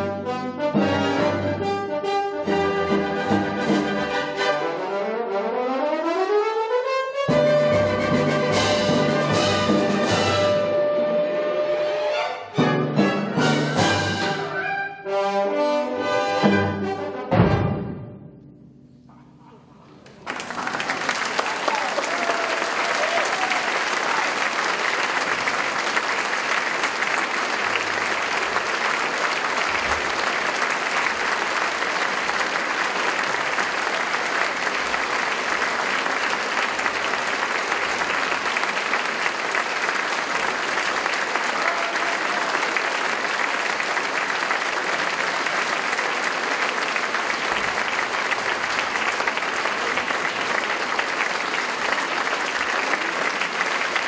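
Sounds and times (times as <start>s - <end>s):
audience applauding: 19.8s - 54.0s.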